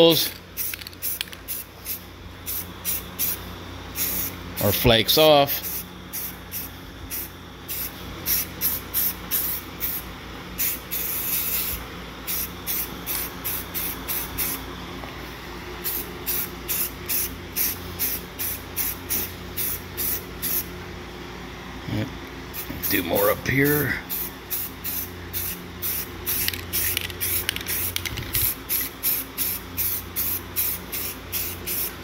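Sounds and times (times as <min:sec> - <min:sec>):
spray paint can hissing: 0:00.6 - 0:03.4, 0:04.0 - 0:04.3, 0:10.6 - 0:14.6, 0:15.8 - 0:20.6, 0:24.1 - 0:32.0.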